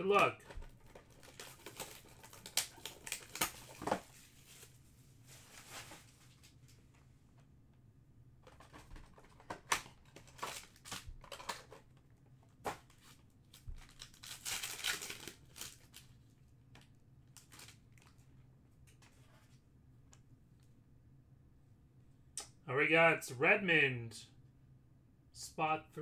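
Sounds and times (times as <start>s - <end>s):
cardboard clicks and rustles: 0.4s - 4.7s, 8.4s - 16.1s
foil pack tearing and crinkling: 1.0s - 4.0s, 9.6s - 11.7s, 13.8s - 16.1s.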